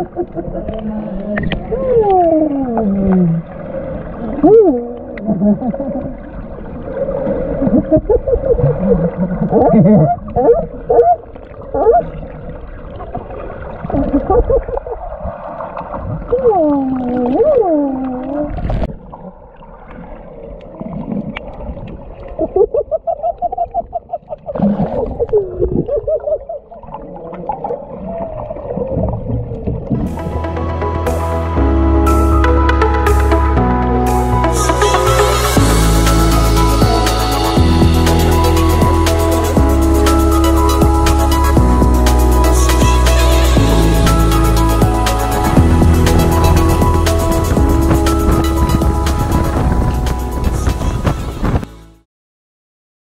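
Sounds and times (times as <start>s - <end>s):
sea lions calling underwater: 0.0s - 15.2s
low rumble of water: 0.0s - 51.7s.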